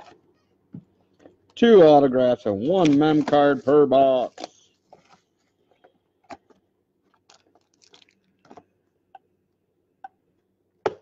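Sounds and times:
plastic wrapping crinkling: 0:07.0 - 0:08.6.

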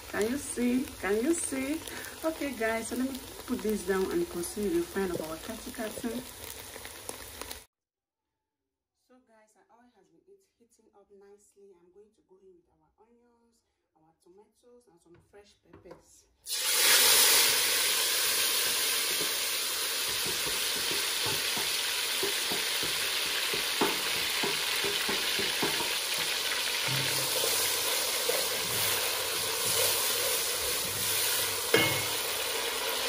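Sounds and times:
vegetables sizzling in hot oil: 0:00.0 - 0:07.7, 0:16.5 - 0:33.0
wooden spoon knocking: 0:20.0 - 0:29.8, 0:30.7 - 0:32.2.

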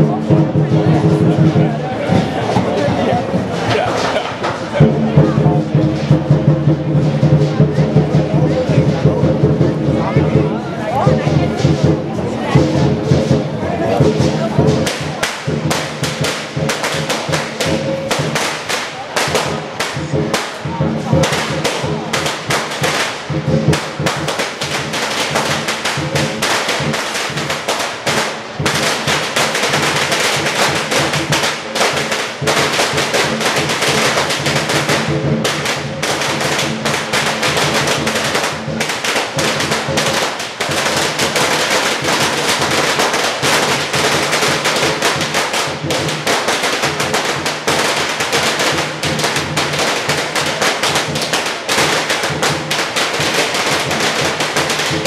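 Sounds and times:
drums beating: 0:00.0 - 0:55.0
firecrackers crackling: 0:00.0 - 0:55.0
cymbals clashing: 0:11.2 - 0:55.0.

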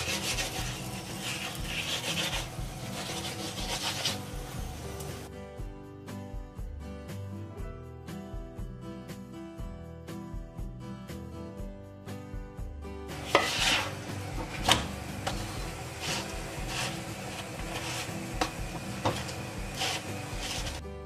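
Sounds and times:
flatbread sizzling on a griddle: 0:00.0 - 0:05.3, 0:13.2 - 0:20.8
spatula scraping a griddle: 0:00.0 - 0:05.3, 0:13.2 - 0:20.8.

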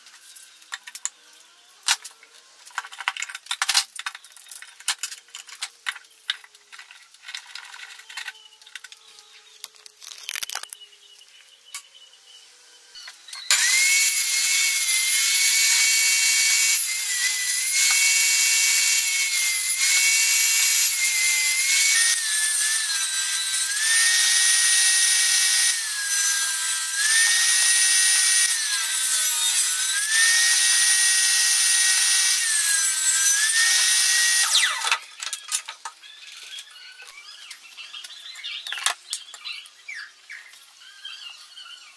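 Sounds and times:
table saw whining: 0:12.1 - 0:37.4.

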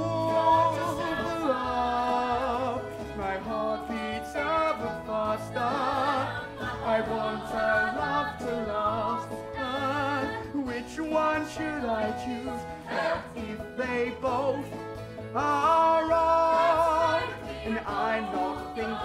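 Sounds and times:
voices singing held notes: 0:00.0 - 0:10.8, 0:11.8 - 0:14.7, 0:15.5 - 0:19.0
instrumental accompaniment with bass: 0:00.0 - 0:19.0.

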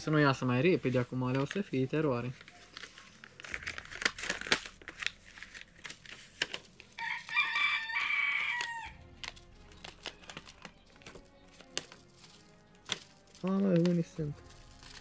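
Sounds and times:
seed packets rustling: 0:00.4 - 0:15.0
rooster crowing: 0:07.0 - 0:09.0.

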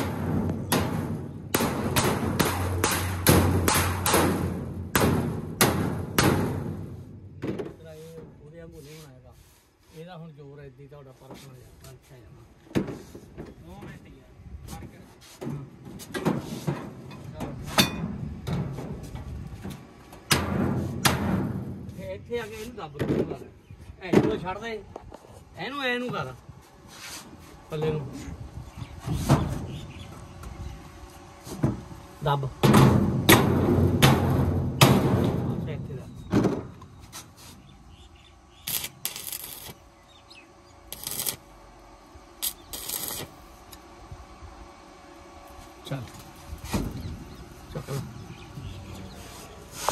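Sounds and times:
metal pipe clanging on steel: 0:17.8 - 0:18.1
sharp metal bang: 0:32.6 - 0:36.6
cutting torch hissing: 0:37.2 - 0:43.8.

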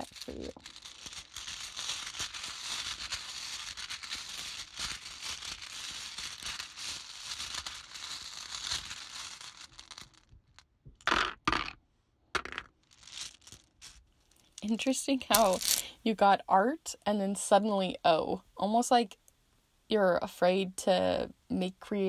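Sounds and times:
letter tiles rattling: 0:11.0 - 0:11.8, 0:12.4 - 0:14.6, 0:15.3 - 0:15.8.

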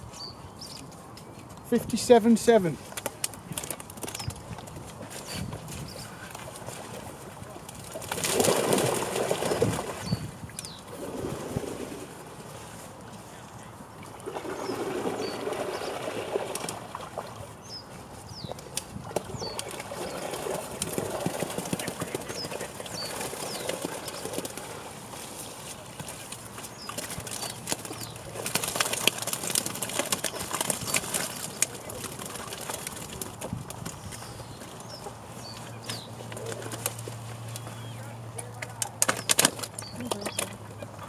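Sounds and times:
fish flapping: 0:02.9 - 0:10.1, 0:18.5 - 0:37.8, 0:38.8 - 0:40.6.

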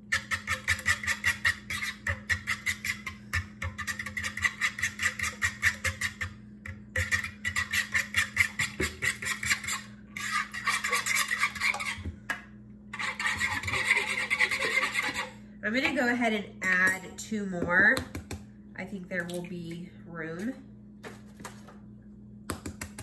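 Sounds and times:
fork whisking eggs in bowl: 0:00.0 - 0:12.1, 0:13.0 - 0:16.1.

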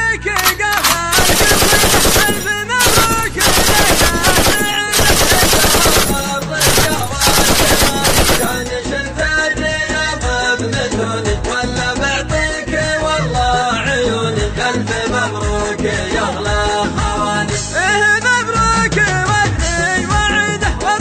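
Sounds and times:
sung melody with music: 0:00.0 - 0:03.5, 0:08.4 - 0:21.0
automatic gunfire bursts: 0:00.4 - 0:08.8.

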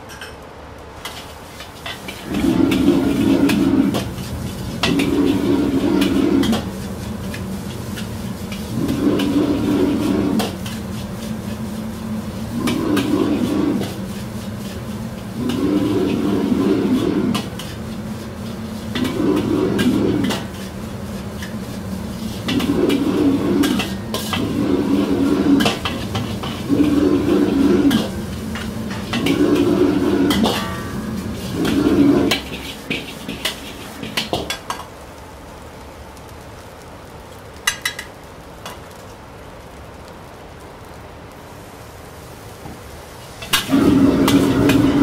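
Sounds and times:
metal ladle scraping wok: 0:01.0 - 0:34.8, 0:43.4 - 0:45.0
gas burner rushing: 0:01.0 - 0:39.1, 0:40.8 - 0:45.0.

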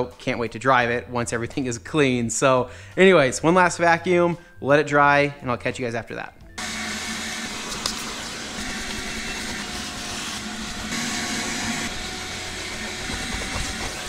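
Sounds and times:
shop vacuum running: 0:06.6 - 0:14.0.

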